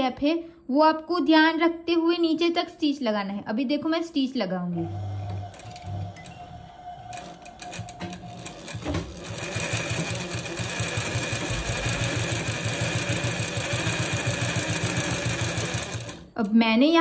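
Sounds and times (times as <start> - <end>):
sewing machine stitching: 4.8 - 16.4.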